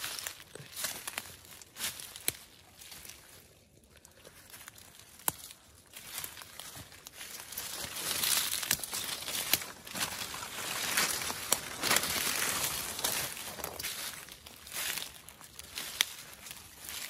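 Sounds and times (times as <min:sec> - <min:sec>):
footsteps crunching through dry leaves: 0:00.0 - 0:17.0
sharp crackles: 0:04.3 - 0:17.0
fronds brushing: 0:04.4 - 0:17.0.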